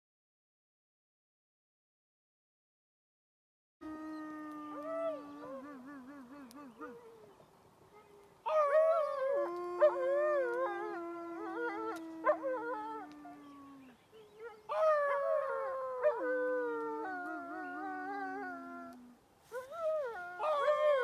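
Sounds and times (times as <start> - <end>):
canids howling in chorus: 8.4 - 19.0.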